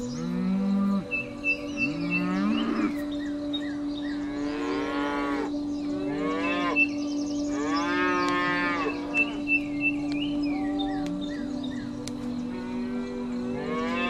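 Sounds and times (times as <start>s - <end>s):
cattle mooing: 1.8s - 3.0s, 4.3s - 6.9s, 7.6s - 9.5s, 10.5s - 14.0s.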